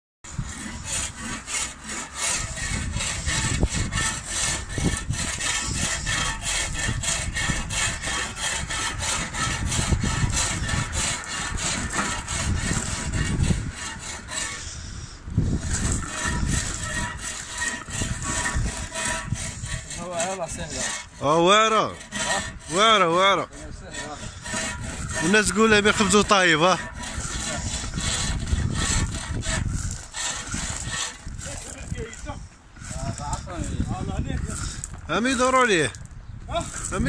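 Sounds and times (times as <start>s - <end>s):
push broom scraping gravel: 15.5s - 37.0s.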